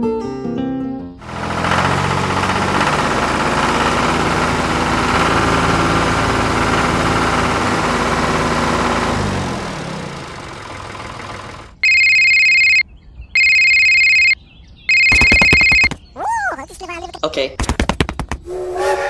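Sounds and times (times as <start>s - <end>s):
phone ringtone: 11.8s - 12.8s, 13.4s - 16.0s.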